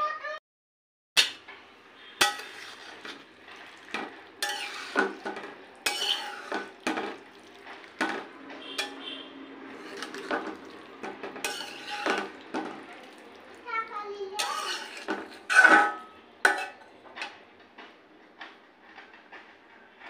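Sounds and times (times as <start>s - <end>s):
metal utensil scraping a pan: 1.2s - 13.1s, 14.3s - 17.4s.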